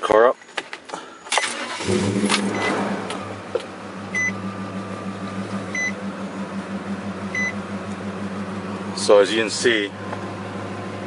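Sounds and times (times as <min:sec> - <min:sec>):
truck engine idling: 0:01.6 - 0:11.0
dashboard warning chime beeps: 0:02.5 - 0:02.8, 0:04.1 - 0:04.4, 0:05.7 - 0:06.0, 0:07.3 - 0:07.6.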